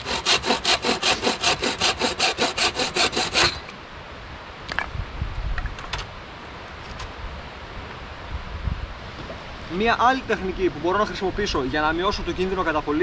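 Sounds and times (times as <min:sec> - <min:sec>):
bow saw cutting branch: 0:00.0 - 0:03.8.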